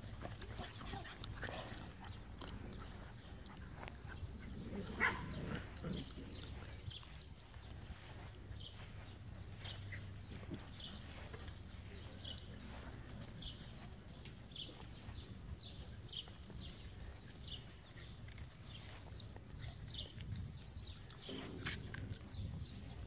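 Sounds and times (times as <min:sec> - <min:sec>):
low rumble of wind: 0:00.0 - 0:23.0.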